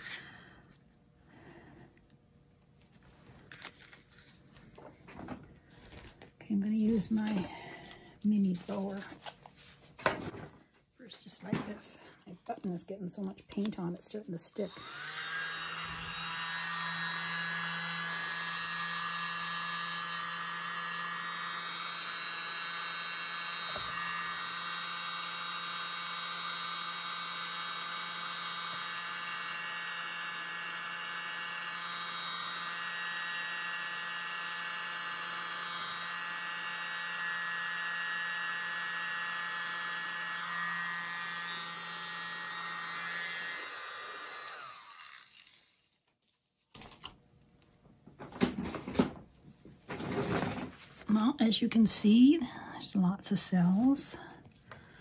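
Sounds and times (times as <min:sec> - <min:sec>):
electric mini blower whining: 0:00.0 - 0:01.8, 0:03.4 - 0:09.2, 0:13.9 - 0:45.9.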